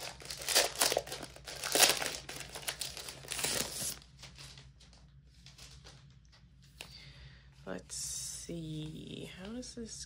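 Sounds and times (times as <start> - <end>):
plastic wrap crinkling: 0.0 - 6.2.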